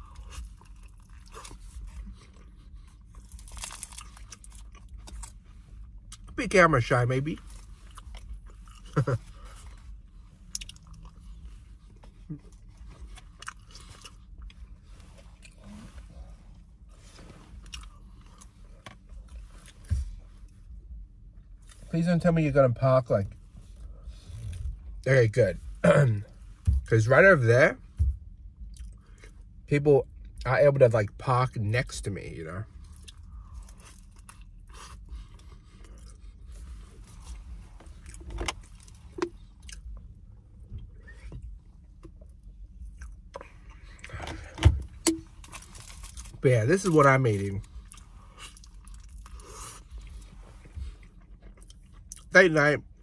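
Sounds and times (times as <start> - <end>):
person chewing food: 0.0 - 6.3, 10.4 - 15.9, 17.6 - 19.8, 28.6 - 29.4, 32.9 - 40.2, 42.2 - 44.6, 47.7 - 52.3
steady low hum: 0.0 - 53.0.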